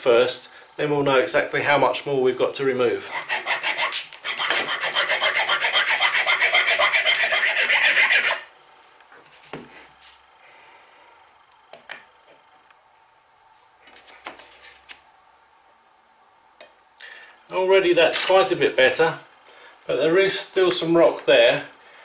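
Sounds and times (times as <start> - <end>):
file rasping on wood: 3.1 - 8.5.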